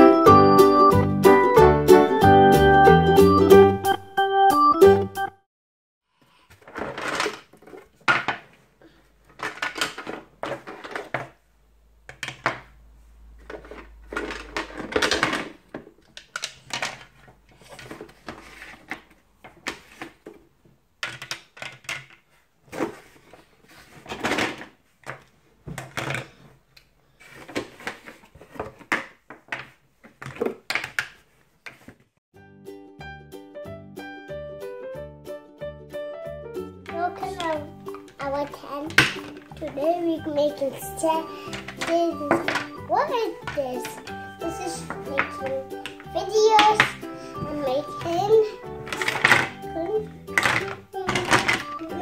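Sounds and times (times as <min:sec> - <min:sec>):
plastic toy pieces clattering: 0:06.5 - 0:08.5, 0:09.3 - 0:11.4, 0:13.4 - 0:20.2, 0:21.0 - 0:22.3, 0:37.2 - 0:39.9, 0:40.6 - 0:42.8, 0:43.4 - 0:52.0.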